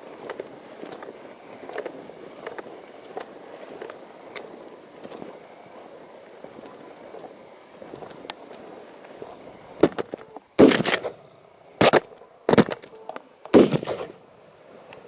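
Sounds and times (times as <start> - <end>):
shotgun shots: 9.8 - 11.2, 11.8 - 12.9, 13.5 - 14.2.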